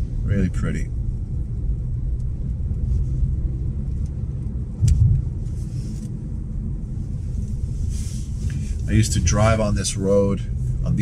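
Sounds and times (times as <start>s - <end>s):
car interior rumble: 0.0s - 11.0s.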